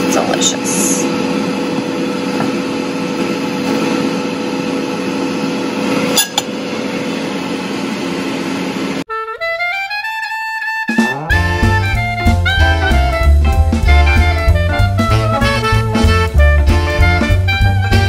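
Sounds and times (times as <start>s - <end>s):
air fryer fan running: 0.0s - 9.0s
music with rising notes: 9.1s - 18.0s.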